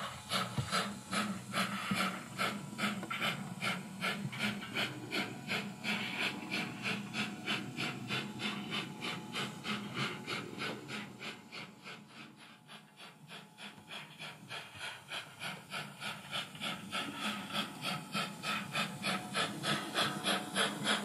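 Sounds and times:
model train steam chuffs: 0.0 - 21.0.

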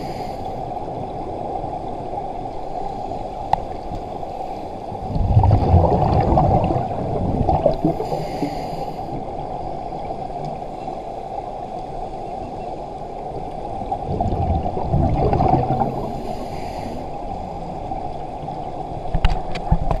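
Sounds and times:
faint regulator hiss: 0.0 - 5.1, 7.7 - 14.0, 15.8 - 19.7
low underwater rumble: 4.9 - 8.6, 11.7 - 16.4
exhaled bubbles gurgling: 4.9 - 10.4, 13.5 - 20.0.

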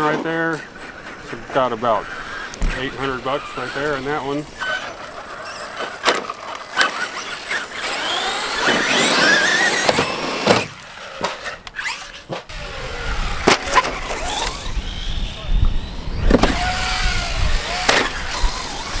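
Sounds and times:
toy car motors whining: 0.0 - 19.0.

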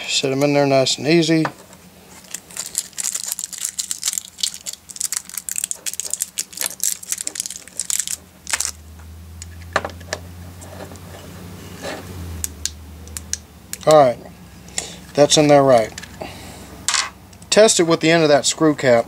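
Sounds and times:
low steady hum: 0.0 - 19.0
small parts clicking and crinkling: 2.1 - 8.8, 12.4 - 14.0.

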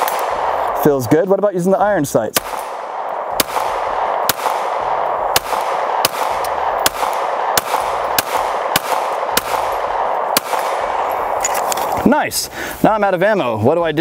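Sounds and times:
pistol shots: 0.0 - 1.3, 2.3 - 11.7.

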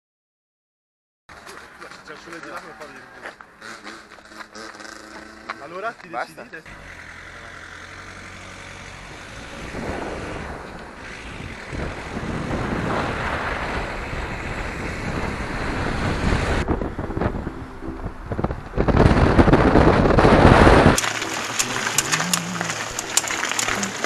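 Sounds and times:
car engine: 2.7 - 24.0
wind on microphone: 9.3 - 24.0
tyre noise: 18.9 - 24.0.

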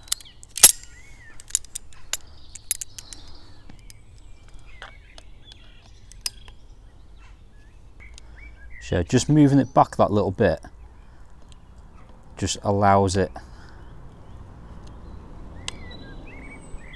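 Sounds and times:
locking pliers clicking: 0.0 - 3.2, 6.1 - 6.5
birds chirping: 0.0 - 16.9.

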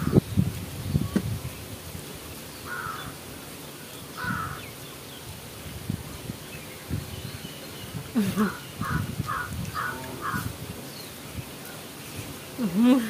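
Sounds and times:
crow cawing: 2.6 - 3.2, 4.2 - 4.7, 8.5 - 10.5.

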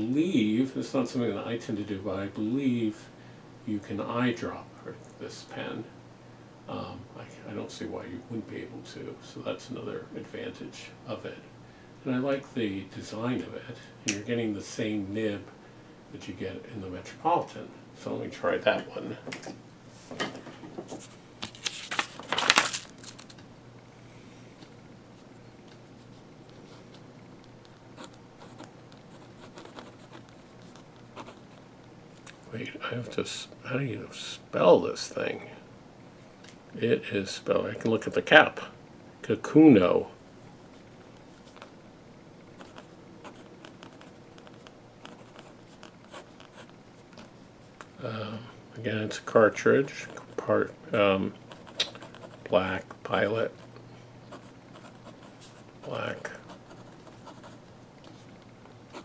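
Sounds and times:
pen handling noises: 20.9 - 23.4, 51.5 - 52.5
pen nib scratching on paper: 28.0 - 31.6, 42.6 - 46.8, 51.5 - 52.5, 54.3 - 57.6.

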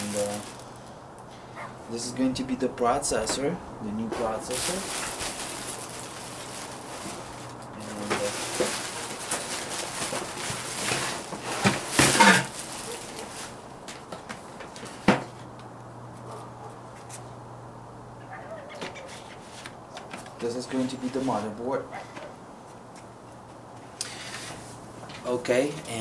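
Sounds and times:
packing and cardboard box rustling: 0.0 - 0.8, 2.4 - 15.4, 18.8 - 23.1.

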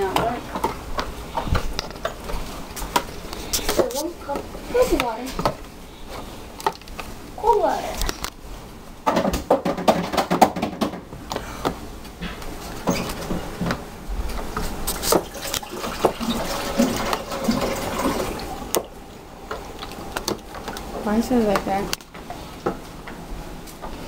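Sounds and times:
liquid sloshing: 14.9 - 21.6.

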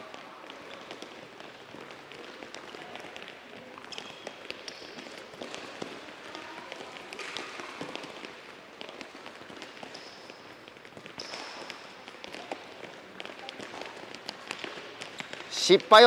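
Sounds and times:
soccer balls being dribbled: 0.0 - 16.0
shoes squeaking on court: 0.2 - 16.0.

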